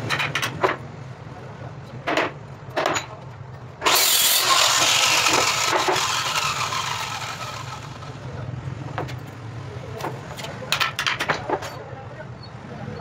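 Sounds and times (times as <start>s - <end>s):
circular saw cutting wood: 3.8s - 8.3s.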